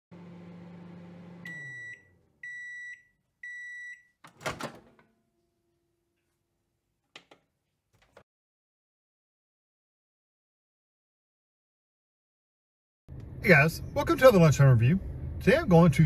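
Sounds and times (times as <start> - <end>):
microwave hum winding down: 0.1 - 2.8
microwave beeps: 1.1 - 4.2
microwave door popping open: 4.3 - 5.0.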